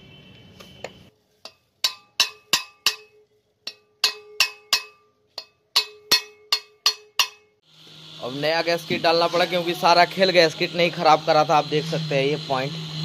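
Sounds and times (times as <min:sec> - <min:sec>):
sharp metallic taps on valves: 0:00.8 - 0:07.6.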